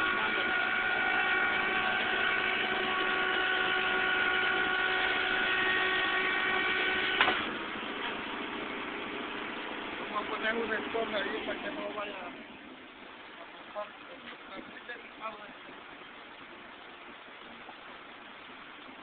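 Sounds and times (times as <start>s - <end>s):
tow truck machinery whine: 0.0s - 12.4s
engine hum: 0.0s - 19.0s
sharp mechanical clunk: 7.2s - 7.5s.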